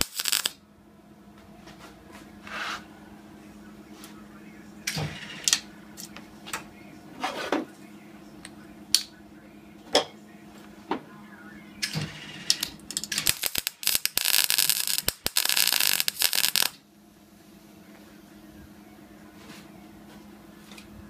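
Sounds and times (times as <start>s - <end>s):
welder arc crackling: 0.0s - 0.6s, 12.5s - 16.8s.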